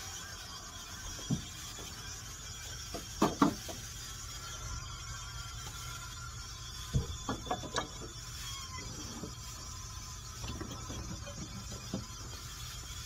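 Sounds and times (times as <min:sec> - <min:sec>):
objects knocking and clattering: 0:02.9 - 0:03.8, 0:06.9 - 0:08.2.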